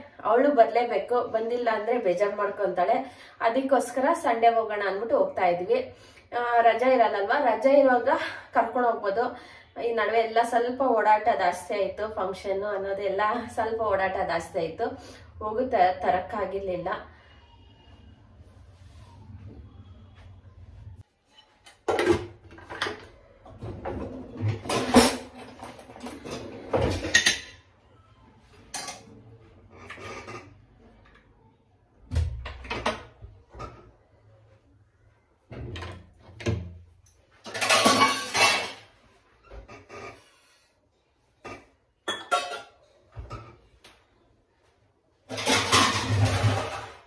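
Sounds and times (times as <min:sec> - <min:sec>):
metal pots clattering and scraping: 0:21.3 - 0:27.7, 0:28.7 - 0:31.0, 0:37.4 - 0:40.6, 0:41.4 - 0:43.7, 0:45.3 - 0:47.0.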